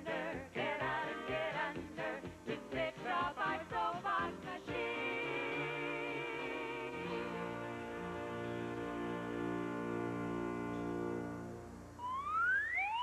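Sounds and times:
song with vibrato singing voices: 0.0s - 10.4s.

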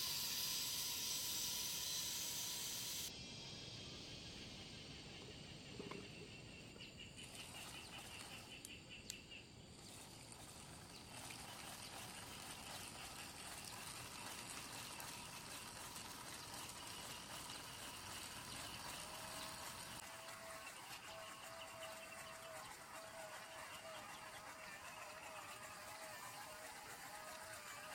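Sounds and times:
steady hiss: 0.0s - 5.2s.

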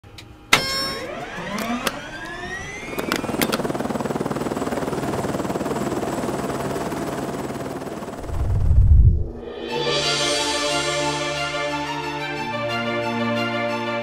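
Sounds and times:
sharp clicks: 0.2s - 3.7s
drone propeller motors whining: 0.5s - 9.4s.

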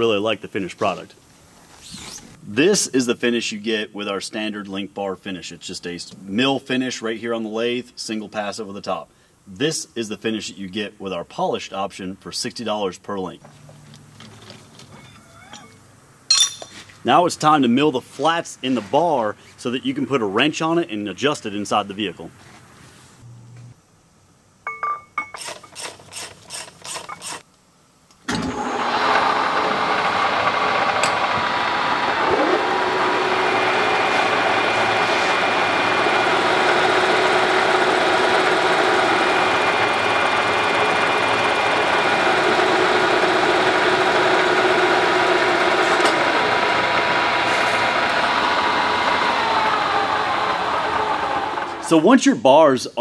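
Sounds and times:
machine spinning down: 28.3s - 51.9s
milling machine running: 28.3s - 51.9s.

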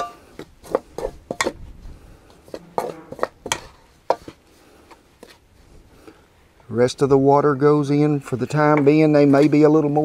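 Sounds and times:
fork scraping in bowl: 2.5s - 4.4s.

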